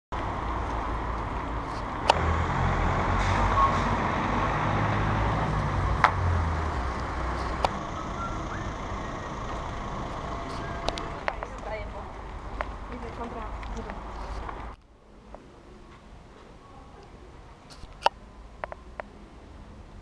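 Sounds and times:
city street noise: 0.1 - 20.0
vehicle engine rumbling past: 0.2 - 14.8.

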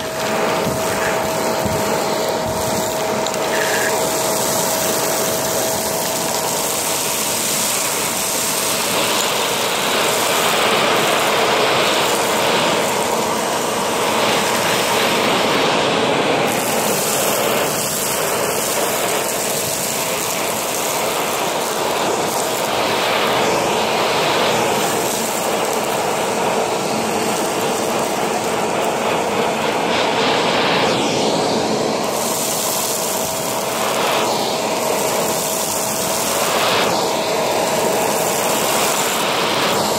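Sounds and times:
faint steady whine: 0.0 - 39.9
vacuum cleaner running: 0.0 - 39.9.

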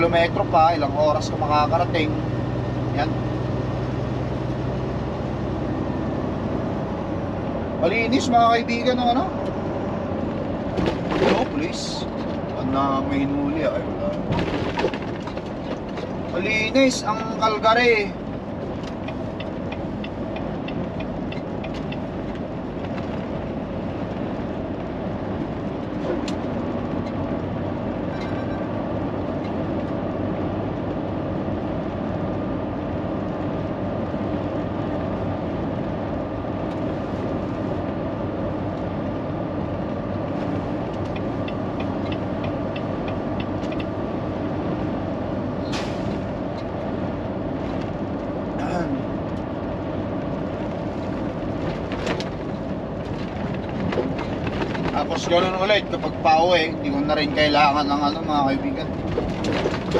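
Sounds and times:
truck diesel engine drone: 0.0 - 59.9
light regular ticking: 18.7 - 22.2, 40.9 - 44.0.

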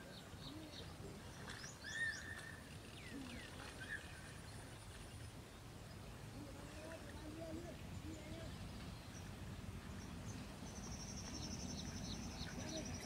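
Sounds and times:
birds chirping and whistling: 0.4 - 4.3.

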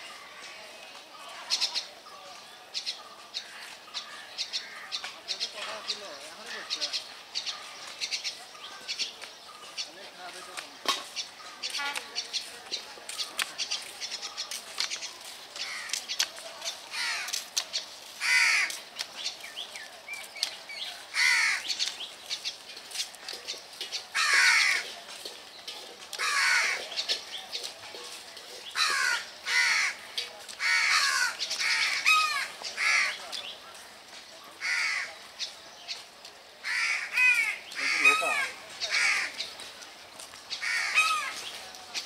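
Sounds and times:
crows cawing: 15.6 - 16.0, 16.9 - 17.4, 18.2 - 18.8, 21.1 - 21.7, 24.2 - 24.8, 26.2 - 26.8, 28.8 - 33.2, 34.6 - 35.2, 36.6 - 39.5, 40.6 - 41.4.

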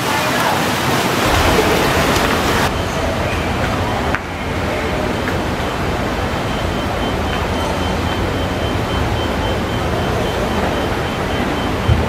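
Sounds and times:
rushing background noise: 0.0 - 12.0
low rumble: 1.2 - 9.5.

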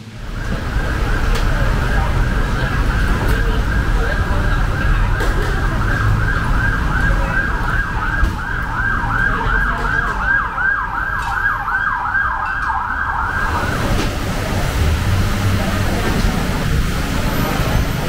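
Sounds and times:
siren yelping: 0.2 - 14.1.

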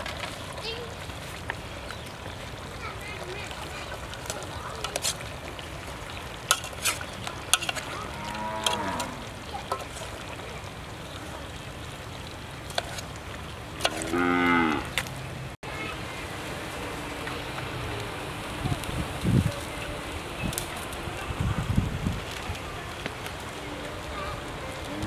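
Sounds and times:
utensil clinking against metal pot: 6.5 - 7.9
cow mooing: 8.1 - 9.2, 14.0 - 14.9.

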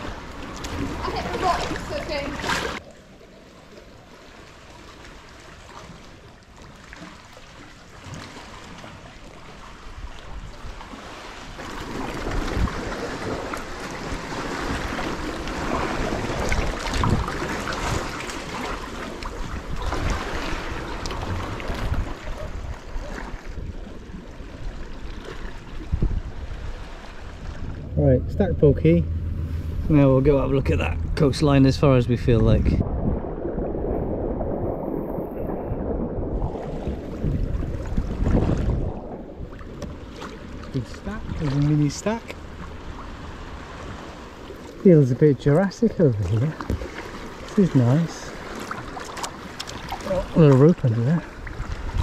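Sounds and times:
paddle blades splashing: 0.0 - 52.0
water washing along hull: 0.0 - 52.0
wind rumbling on microphone: 9.7 - 44.8, 51.2 - 52.0.

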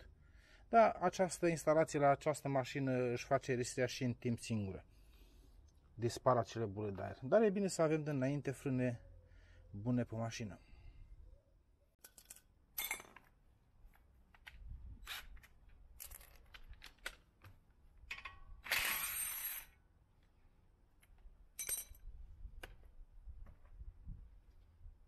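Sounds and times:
metal tools clinking: 12.0 - 13.3, 21.5 - 22.1.

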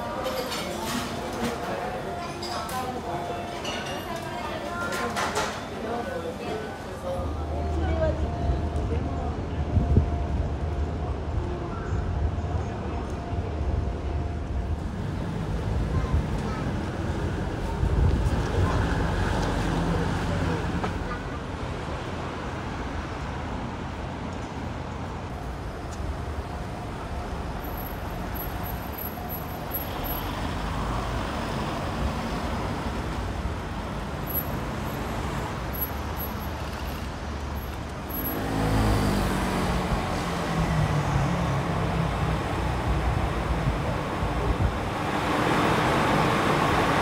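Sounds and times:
passing cars hum: 12.1 - 47.0.

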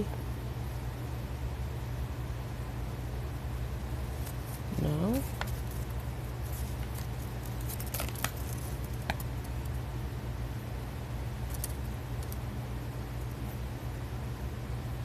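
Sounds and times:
steady low hum: 0.0 - 15.0
paper leaflet crinkling: 4.1 - 9.7, 11.4 - 12.4.

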